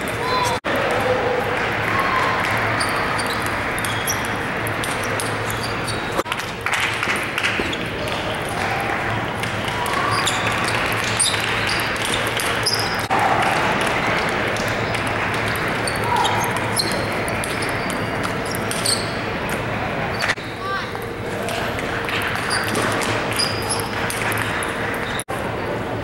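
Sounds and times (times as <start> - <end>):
crowd chatter: 0.0 - 26.0
table tennis balls clicking: 2.4 - 8.6, 9.3 - 20.4.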